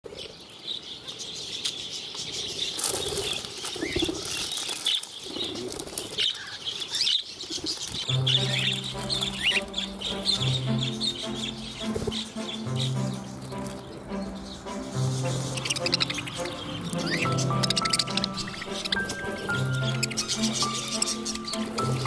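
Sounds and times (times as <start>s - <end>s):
birds twittering and chirping: 0.0s - 22.0s
wings fluttering: 2.6s - 22.0s
background music: 8.1s - 22.0s.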